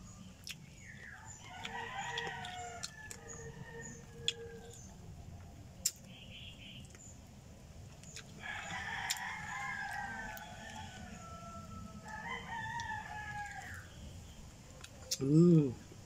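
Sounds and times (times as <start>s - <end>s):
rooster crowing: 1.4s - 5.0s, 8.4s - 13.9s.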